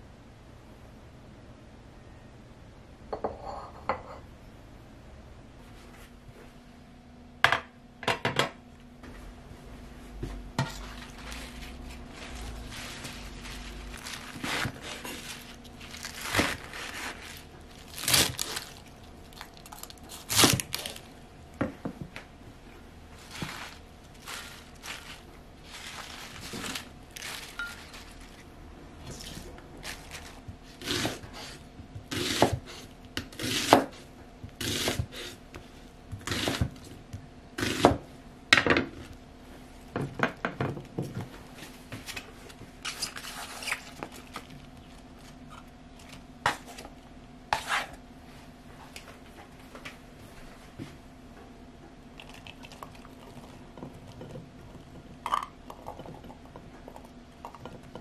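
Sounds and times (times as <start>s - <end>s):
knife cutting onion: 30.6s - 35.4s, 36.1s - 36.9s, 37.6s - 38.0s
knife cutting on wooden board: 30.8s - 33.9s, 34.6s - 35.4s.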